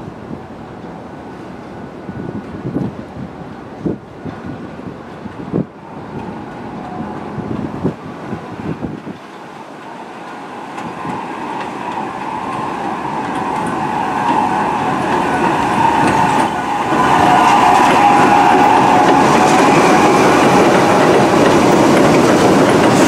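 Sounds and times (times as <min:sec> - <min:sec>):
subway train rumble and whine: 0:00.0 - 0:23.0.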